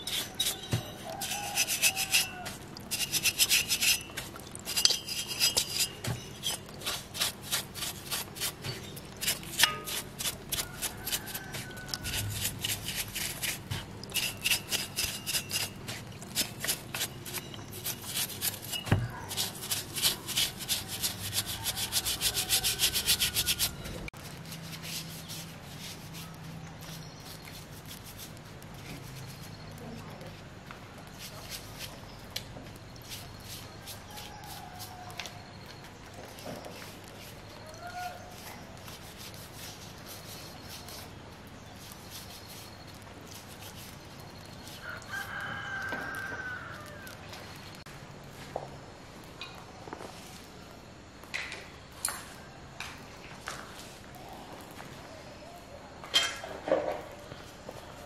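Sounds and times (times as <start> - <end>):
stiff brush scrubbing metal: 0.0 - 29.5.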